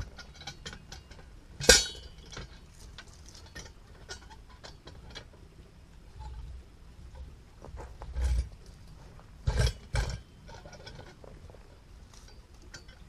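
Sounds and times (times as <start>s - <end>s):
sharp ringing metal clank: 1.6s - 2.6s.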